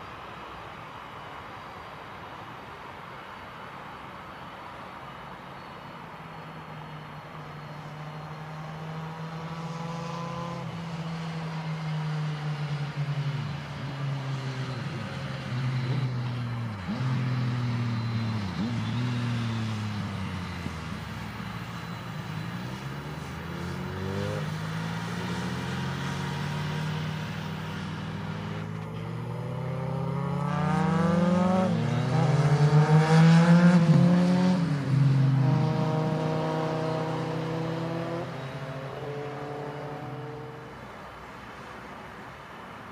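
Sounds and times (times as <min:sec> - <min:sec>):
jet engine whine and rumble: 0:19.6 - 0:24.1.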